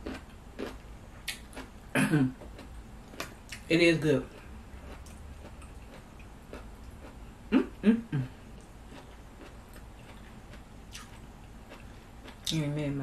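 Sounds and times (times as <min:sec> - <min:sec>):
faint chewing: 0:00.0 - 0:01.7, 0:02.3 - 0:12.6
person humming: 0:07.5 - 0:08.4.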